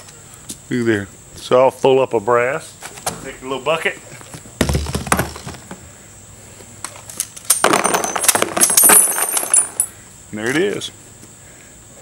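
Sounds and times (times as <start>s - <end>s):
shell casings clattering into tub: 7.4s - 10.0s.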